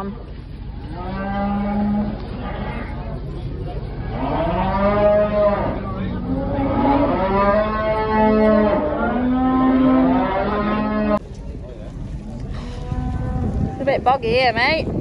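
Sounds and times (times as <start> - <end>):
cattle mooing: 0.8 - 3.2, 4.0 - 11.2.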